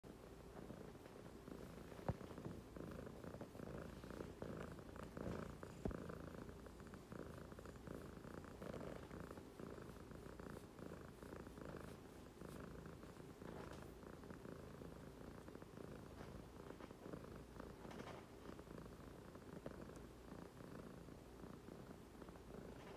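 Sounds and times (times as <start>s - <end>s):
cat purring: 0.1s - 22.9s.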